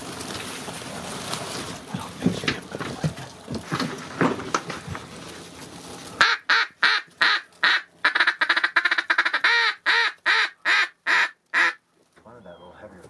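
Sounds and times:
duck call quacks: 6.2 - 11.8.

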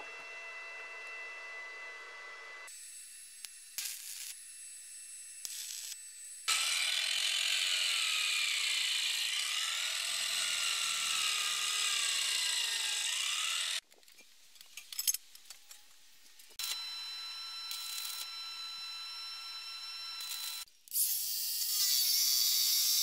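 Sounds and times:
angle grinder whine: 0.0 - 13.8, 16.5 - 20.7
stick welding crackle: 3.4 - 4.4, 5.4 - 6.0, 17.7 - 18.3, 20.2 - 20.7.

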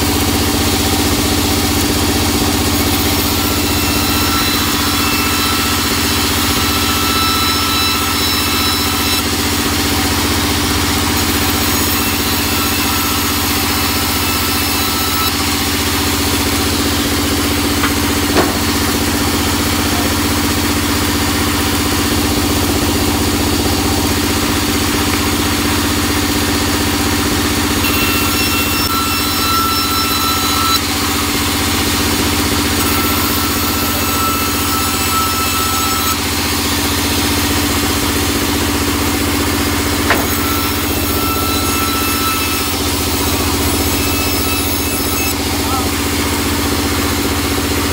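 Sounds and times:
band saw cutting wood: 0.0 - 47.9
single knock: 17.8 - 19.0, 40.1 - 40.4.

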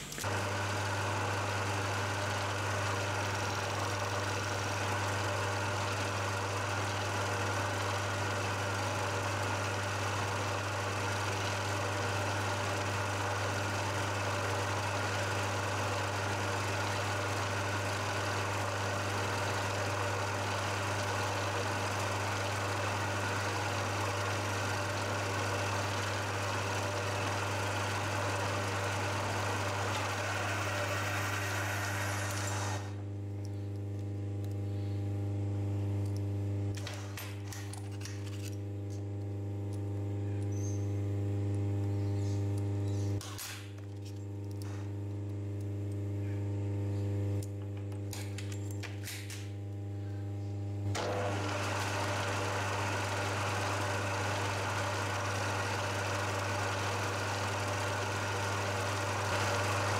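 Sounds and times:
milling machine humming: 0.0 - 34.8, 50.9 - 59.9.

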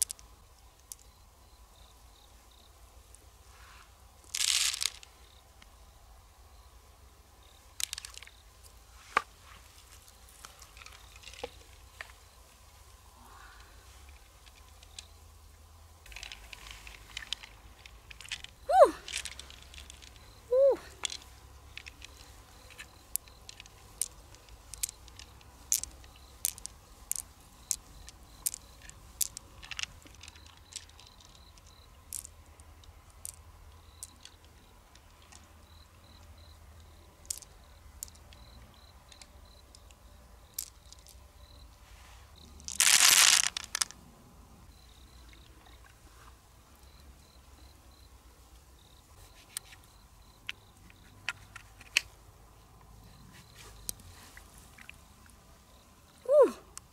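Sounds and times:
pearls clicking on shell: 0.0 - 1.2, 7.7 - 8.4, 16.0 - 41.3, 42.7 - 44.0.

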